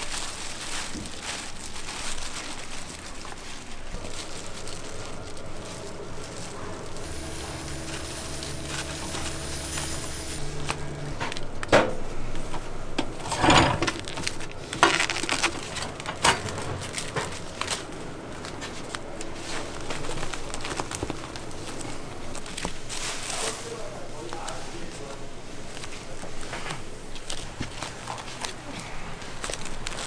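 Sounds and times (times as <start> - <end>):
low steady hum: 0.0 - 30.0
plastic wrap crinkling: 0.0 - 30.0
film rasping across machine: 4.0 - 12.2.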